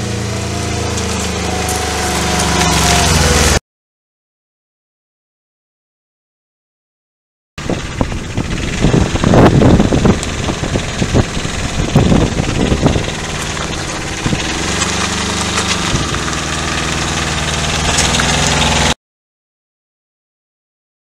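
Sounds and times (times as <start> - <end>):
quad bike diesel engine: 0.0 - 3.6, 7.6 - 19.0.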